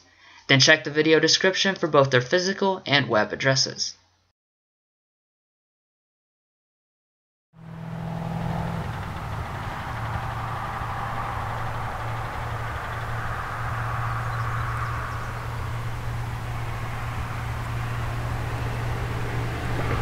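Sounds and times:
engine idling hum: 7.6 - 20.0
outdoor background noise: 7.6 - 20.0.

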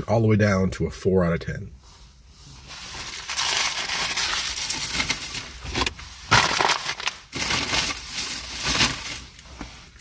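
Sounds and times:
paper wrapper crumpling: 3.0 - 9.4.

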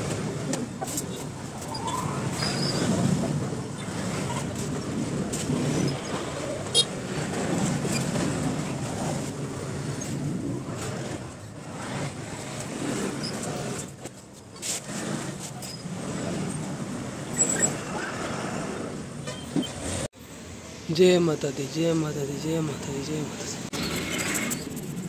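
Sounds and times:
motorcycles passing: 0.0 - 14.0.

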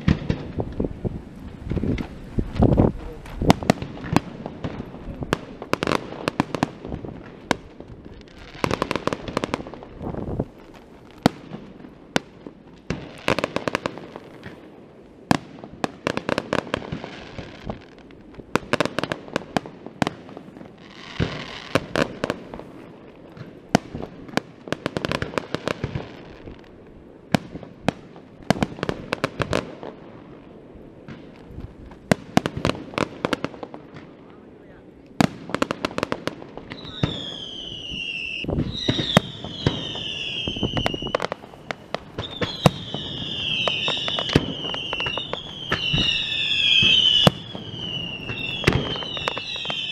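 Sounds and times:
fireworks crackling: 0.0 - 49.9
firework shells bursting: 35.2 - 49.9.

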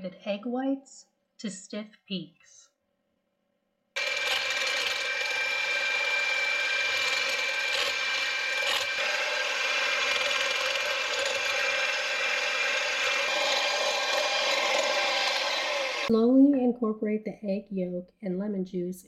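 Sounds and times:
electric mixer whipping egg whites: 4.0 - 16.1.

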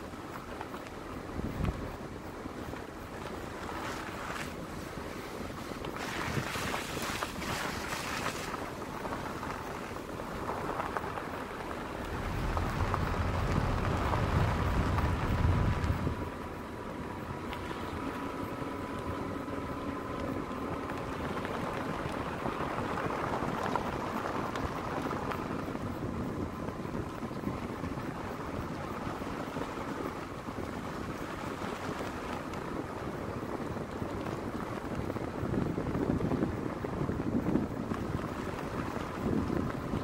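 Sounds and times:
vehicle engine and tyres on gravel: 0.0 - 40.0
low rumble: 8.9 - 22.5.

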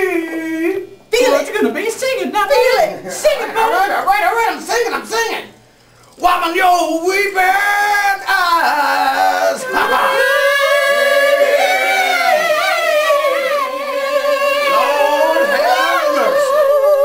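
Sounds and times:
person singing a high note: 9.5 - 17.0.

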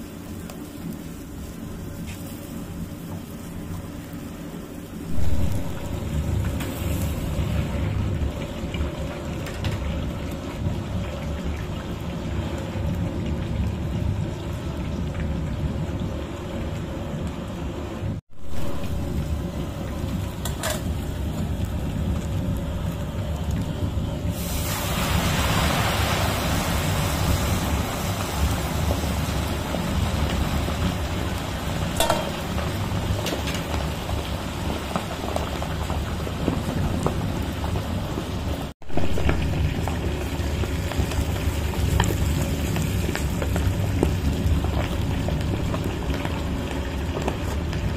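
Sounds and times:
oil sizzling and crackling: 0.0 - 17.6, 18.2 - 47.9
steady low rumble: 0.6 - 17.4, 18.0 - 24.4.

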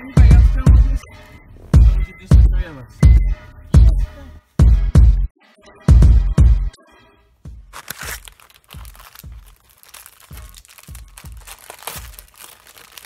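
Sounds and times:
background music with steady beat: 0.0 - 13.0
plastic wrap crinkling: 7.8 - 13.0.

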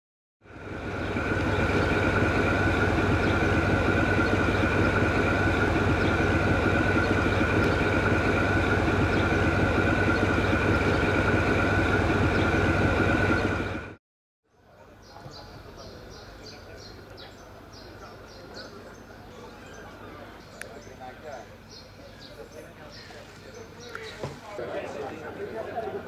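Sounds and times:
locomotive diesel engine idling: 0.5 - 14.0, 14.8 - 26.0
steady high whine: 0.5 - 14.0.

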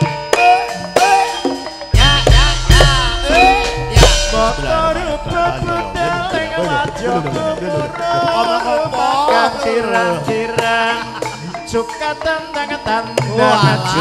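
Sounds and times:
drum strokes: 0.0 - 9.7
metallophones and gongs ringing: 0.0 - 14.0
wavering sung melody: 0.0 - 14.0.

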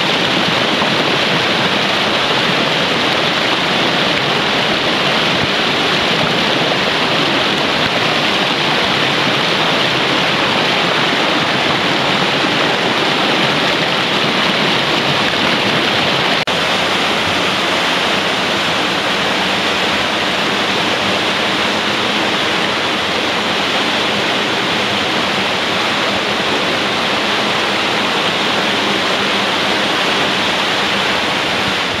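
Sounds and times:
cascade pouring into pool: 0.0 - 32.0
stream rushing over boulders: 0.0 - 32.0.

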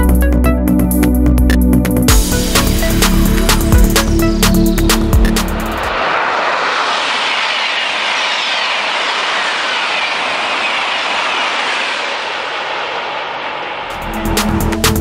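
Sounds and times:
high-speed train passing: 2.1 - 15.0.

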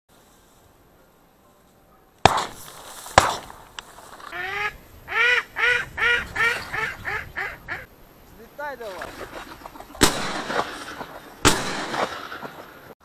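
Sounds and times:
sharp bangs: 2.2 - 4.2, 9.0 - 13.0
mallard quacking: 4.2 - 7.9.

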